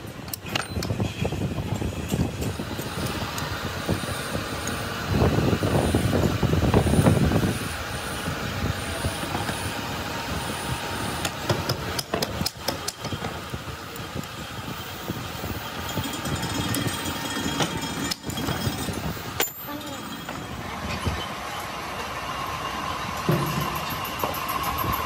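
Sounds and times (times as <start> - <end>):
steady background noise: 0.0 - 25.0
metal clicks and clinks: 15.9 - 20.4.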